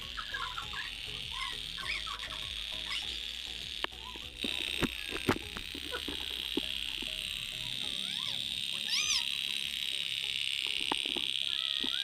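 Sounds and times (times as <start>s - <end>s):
toy boat engine pulsing: 0.0s - 12.0s.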